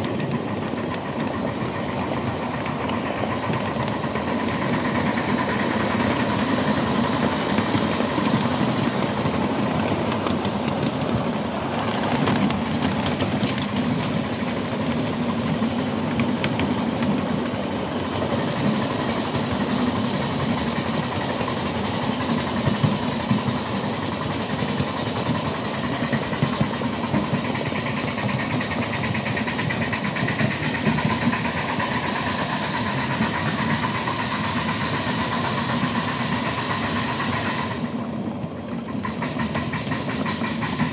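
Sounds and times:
miniature steam train running: 0.0 - 40.9.

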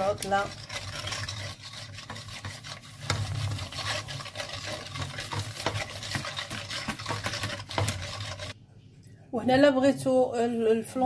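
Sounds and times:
whisk scraping saucepan: 0.0 - 8.6.

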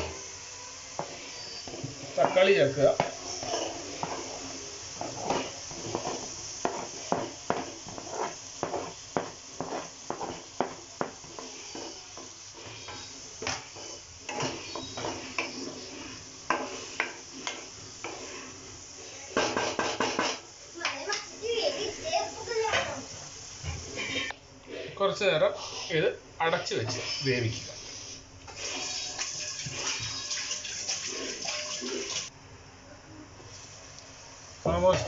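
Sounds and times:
steady sizzle: 0.0 - 35.0
utensil scraping pan: 1.0 - 20.4.

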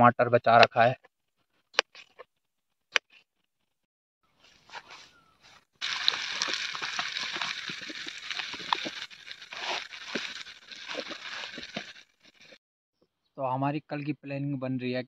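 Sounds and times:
chicken sizzling in hot oil: 5.8 - 12.6.

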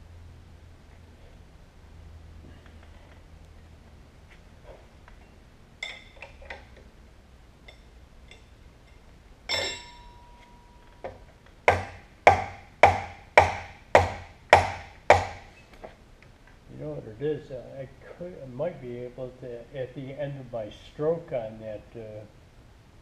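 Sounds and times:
hammer striking cast iron: 9.5 - 10.8, 11.7 - 15.5.

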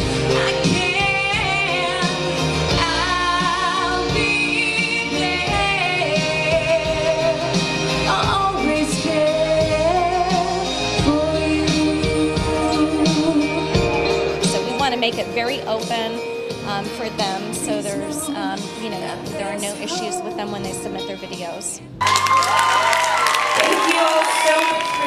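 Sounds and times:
instrumental backing music: 0.0 - 25.0
woman singing into microphone: 0.1 - 21.8.

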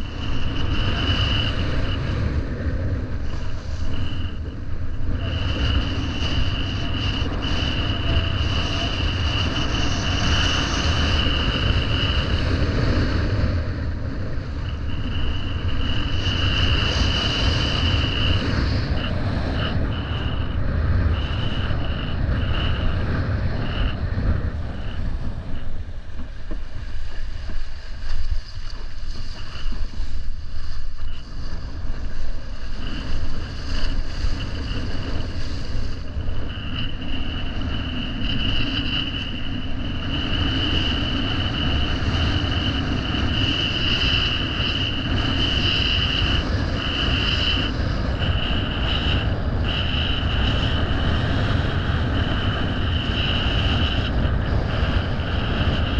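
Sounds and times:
wind buffeting microphone: 0.0 - 55.9
thin high whistle: 3.1 - 12.4.

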